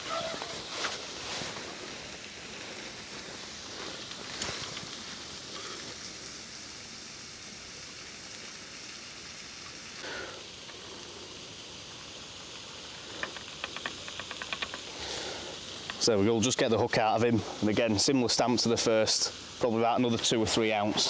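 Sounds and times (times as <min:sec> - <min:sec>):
outdoor background hiss: 0:00.0 - 0:21.0.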